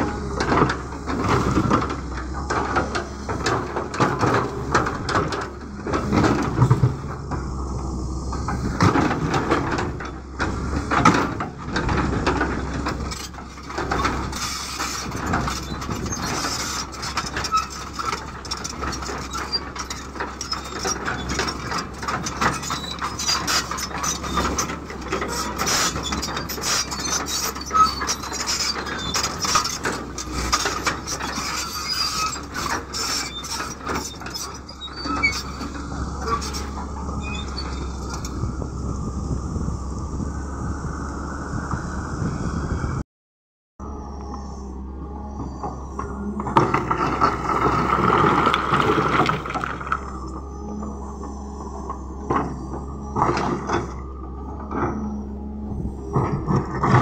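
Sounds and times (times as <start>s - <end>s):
excavator diesel engine: 0.0s - 43.0s, 43.8s - 57.0s
rocks clattering against steel bucket: 46.6s - 50.1s.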